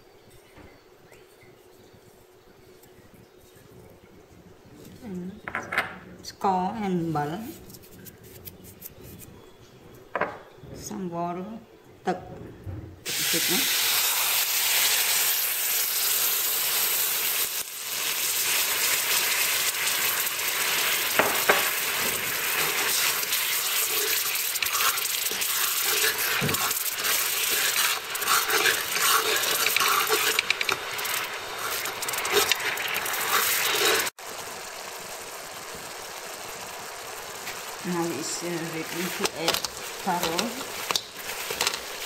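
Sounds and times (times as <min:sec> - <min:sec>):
syrup boiling and sizzling in wok: 0:13.1 - 0:42.0
metal spatula scraping pan: 0:22.5 - 0:34.1.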